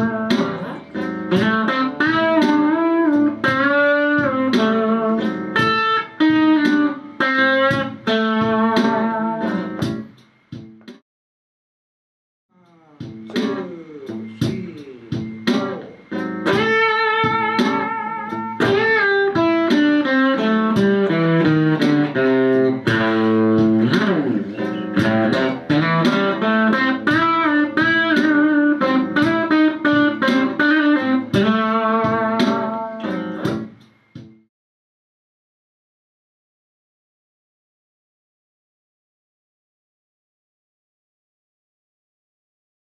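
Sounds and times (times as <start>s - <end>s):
electric guitar blues lead: 0.0s - 10.1s, 12.7s - 33.8s.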